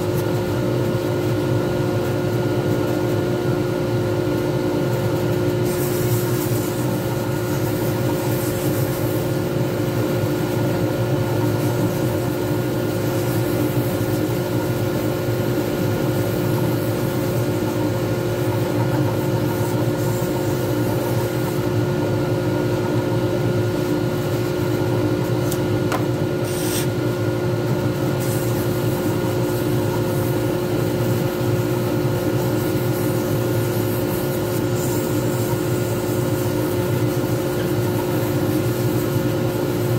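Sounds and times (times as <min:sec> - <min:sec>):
sandpaper sanding spinning blank: 0:26.4 - 0:27.0.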